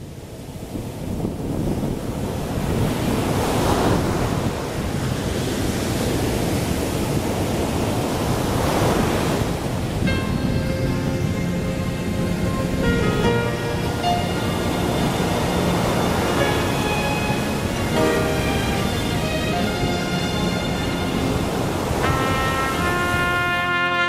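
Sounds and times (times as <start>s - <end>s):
rushing sea wind: 0.0s - 24.0s
small waves washing ashore: 0.0s - 24.0s
music: 10.1s - 24.0s.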